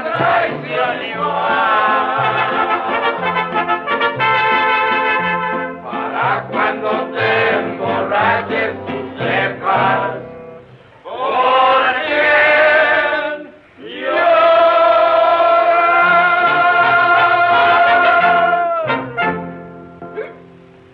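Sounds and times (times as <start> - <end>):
men singing together: 0.0 - 3.3, 5.8 - 10.3, 11.1 - 18.6
mariachi band playing: 0.0 - 10.9, 14.1 - 20.8.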